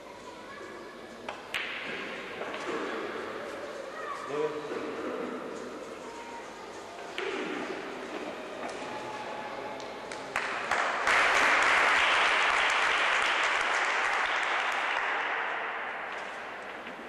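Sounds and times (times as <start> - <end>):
audience applauding: 9.1 - 15.5.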